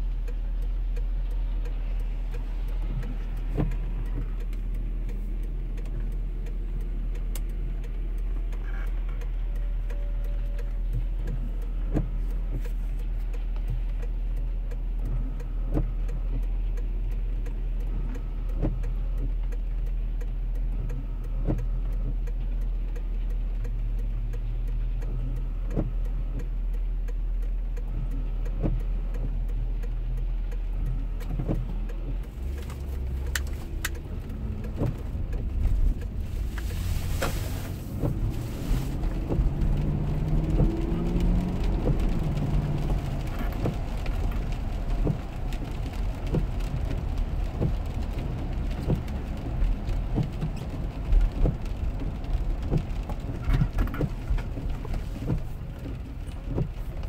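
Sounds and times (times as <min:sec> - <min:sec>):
car engine idling and accelerating: 0:00.0 - 0:57.0
windshield wipers clicking: 0:00.1 - 0:57.0
tyres hissing on wet road: 0:32.3 - 0:57.0.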